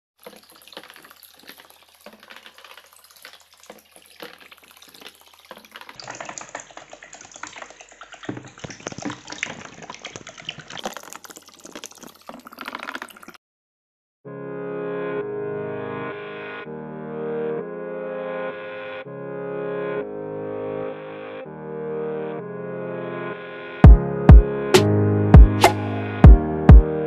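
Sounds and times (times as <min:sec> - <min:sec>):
water splashing and churning: 0:00.2 - 0:13.4.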